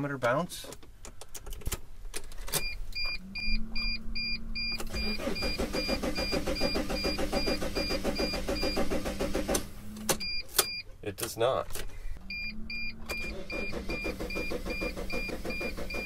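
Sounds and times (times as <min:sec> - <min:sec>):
engine cranking without starting: 0:04.8 - 0:09.7, 0:13.0 - 0:16.0.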